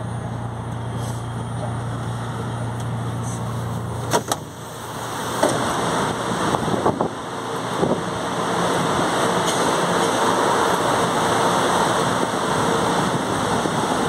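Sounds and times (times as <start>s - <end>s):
train hum at platform: 0.0s - 14.0s
noisy rush: 1.7s - 14.0s
train doors clunking open: 2.5s - 8.1s, 9.1s - 10.8s.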